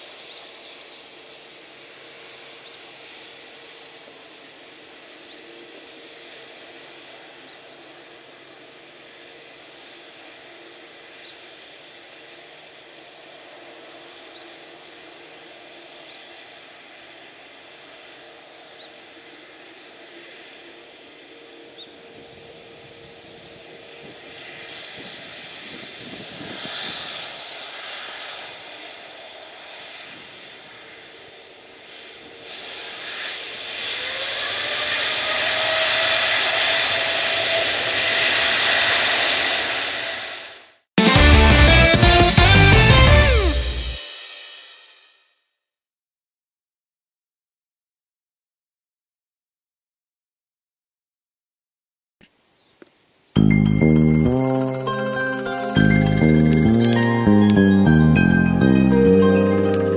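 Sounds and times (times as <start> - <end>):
jet engines spooling up: 22.0 - 40.8.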